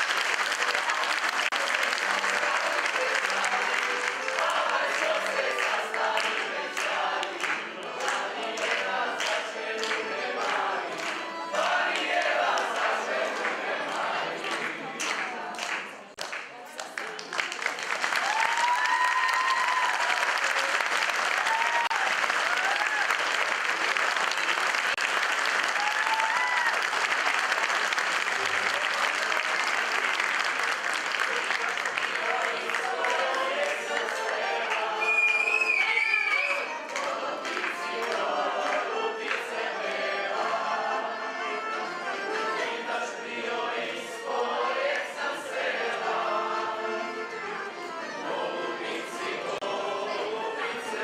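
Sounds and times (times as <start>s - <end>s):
accordion: 0.0s - 15.8s, 27.2s - 51.0s
audience applauding: 0.0s - 39.4s
group singing in chorus: 0.8s - 16.0s, 31.8s - 51.0s
sharp claps: 14.5s - 18.5s.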